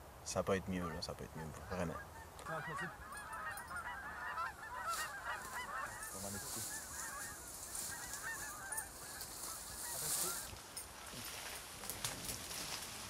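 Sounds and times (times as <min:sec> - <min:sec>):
geese honking: 0:00.4 - 0:10.6.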